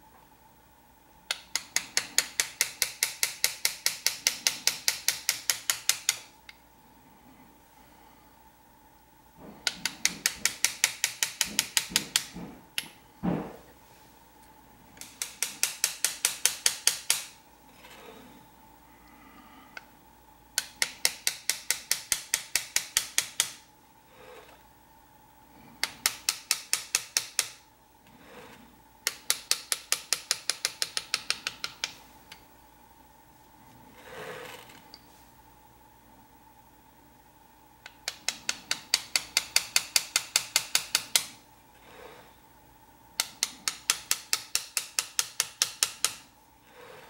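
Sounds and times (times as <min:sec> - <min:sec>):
hammer tapping chisel on metal: 0:01.3 - 0:06.3, 0:09.4 - 0:13.6, 0:15.0 - 0:17.4, 0:20.6 - 0:23.6, 0:25.8 - 0:27.6, 0:29.1 - 0:32.0, 0:37.8 - 0:41.3, 0:43.2 - 0:46.2.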